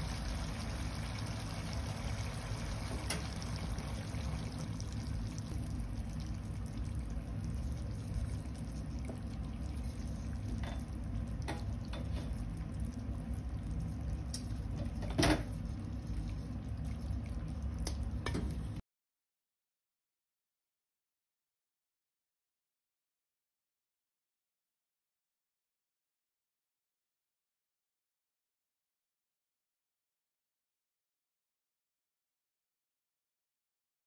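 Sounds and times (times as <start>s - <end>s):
sauce simmering with pops: 0.0s - 18.8s.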